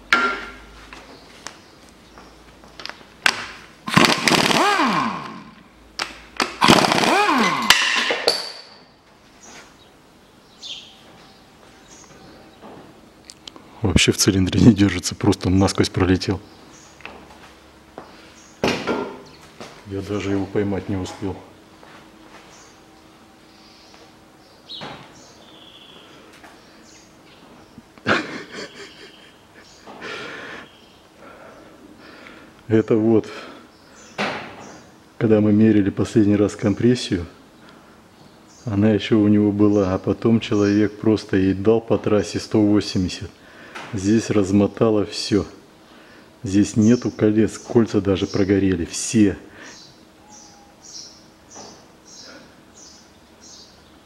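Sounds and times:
impact wrench hammering: 0:03.2 - 0:08.8
faint bird chirps: 0:22.5 - 0:27.9, 0:49.6 - 0:54.0.

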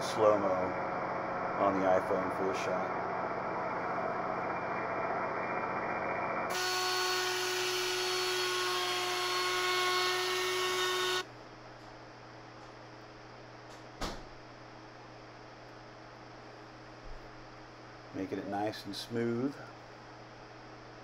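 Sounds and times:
router cutting wood: 0:06.5 - 0:11.3.

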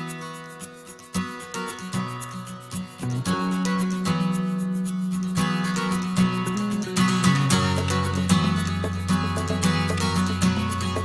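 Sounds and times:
instrumental music: 0:00.0 - 0:11.0.

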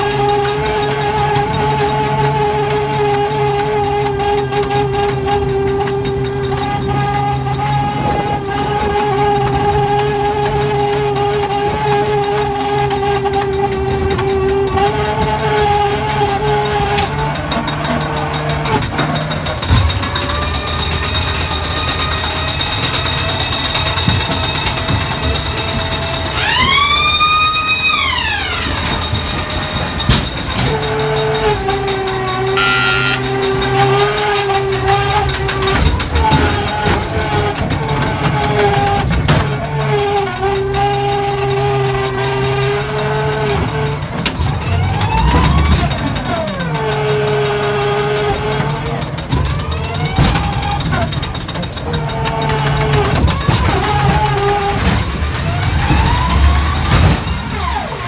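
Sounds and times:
ride car rumbling on track: 0:00.0 - 0:58.0
siren-like wail: 0:24.3 - 0:38.0, 0:38.6 - 0:58.0.

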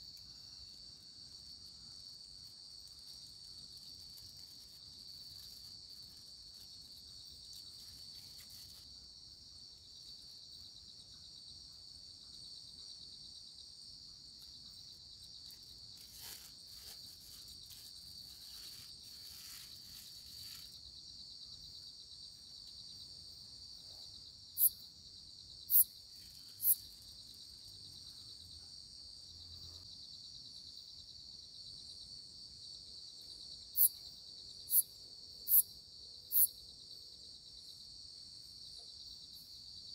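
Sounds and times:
insects trilling: 0:00.0 - 0:28.7, 0:33.7 - 0:36.6.

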